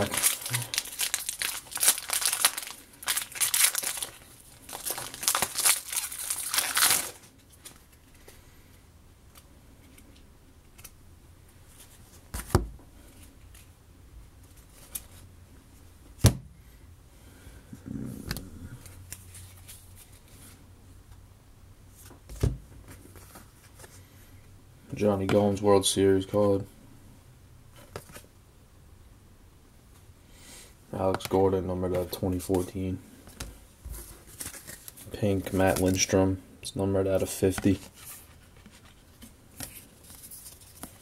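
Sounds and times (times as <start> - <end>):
foil wrapper tearing and crinkling: 0.0 - 7.3.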